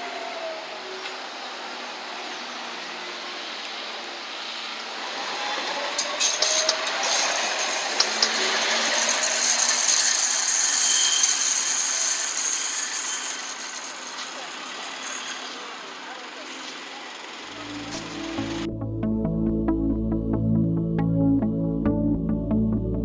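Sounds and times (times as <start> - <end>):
hiss of wheels on rail: 0.0 - 17.6
tram motor whine: 0.0 - 21.8
wheels clicking over rail joints: 4.8 - 18.6.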